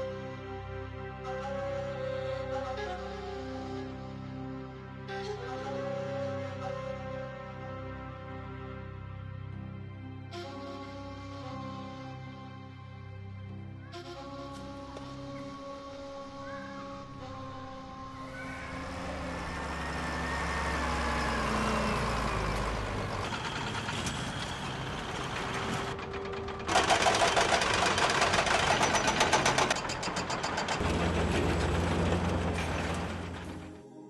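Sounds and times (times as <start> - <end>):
construction site rumble: 14.0 - 34.0
heavy machinery running: 18.2 - 33.9
hydraulic rock breaker hammering: 23.3 - 33.4.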